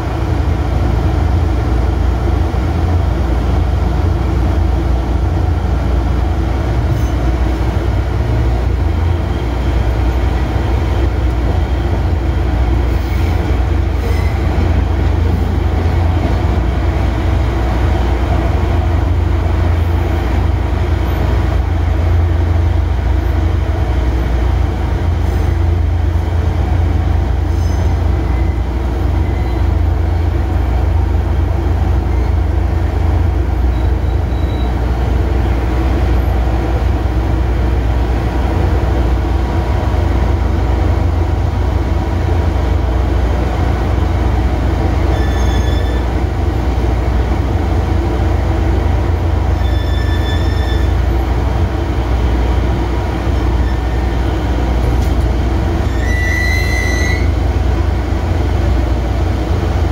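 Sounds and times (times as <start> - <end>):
locomotive engine droning: 0.0 - 59.9
high-pitched wheel squeals: 33.7 - 34.7, 45.1 - 46.1, 49.5 - 51.0, 55.9 - 57.4.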